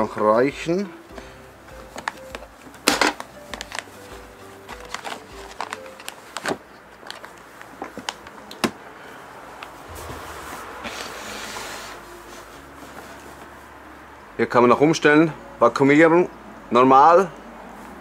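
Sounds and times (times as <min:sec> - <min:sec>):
plastic bag crinkling: 0:01.8 - 0:08.3.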